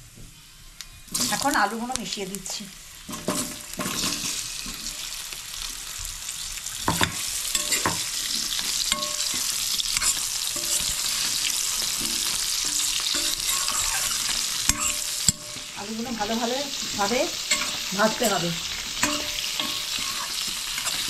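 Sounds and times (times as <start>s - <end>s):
potatoes sizzling in oil: 0.6s - 21.0s
metal spoon scraping a pan: 3.0s - 5.1s, 6.8s - 21.0s.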